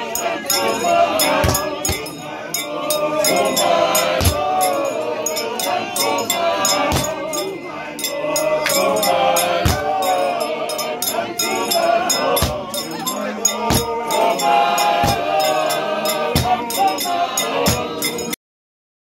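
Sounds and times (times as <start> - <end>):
sharp percussive strokes: 0.0 - 18.4
voices singing together: 0.0 - 18.4.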